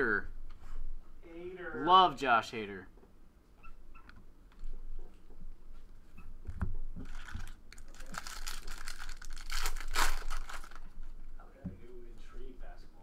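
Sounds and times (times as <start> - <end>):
foil wrapper crinkling and tearing: 7.0 - 11.0.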